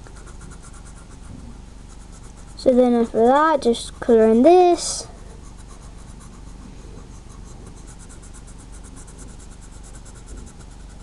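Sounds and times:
pencil scratching on paper: 0.0 - 11.0.

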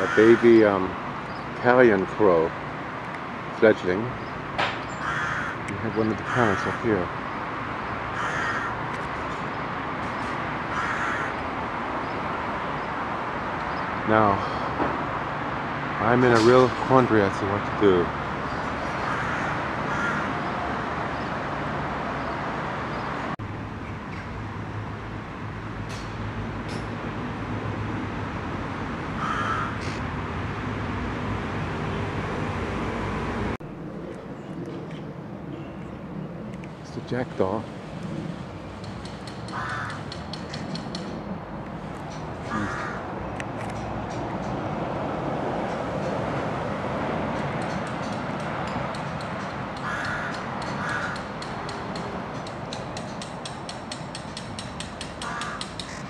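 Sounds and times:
crow cawing: 0.0 - 0.7, 5.0 - 7.1, 8.1 - 8.9, 10.7 - 11.5, 18.9 - 20.6, 29.2 - 30.0, 39.5 - 40.2, 42.4 - 43.1, 49.8 - 51.4, 55.2 - 56.0.

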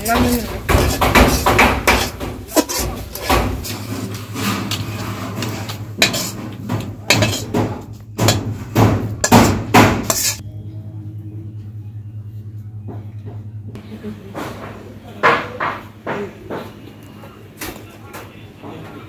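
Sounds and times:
metal spatula scraping a pan: 0.0 - 7.6, 9.2 - 10.4
low steady hum: 10.4 - 14.3.

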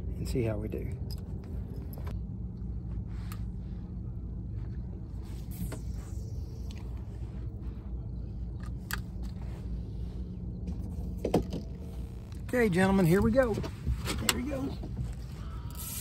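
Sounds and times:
steady low rumble: 0.0 - 16.0
fishing reel clicks: 15.7 - 16.0.

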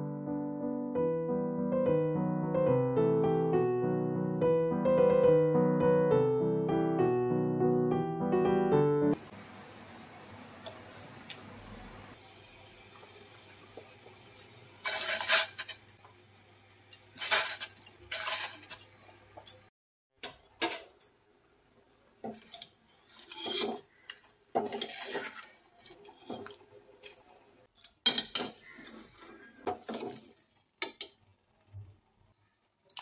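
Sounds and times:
metal utensils scraping steel pot: 14.8 - 16.0, 16.9 - 19.6, 22.2 - 31.1
potatoes stirred through water: 22.2 - 27.5.

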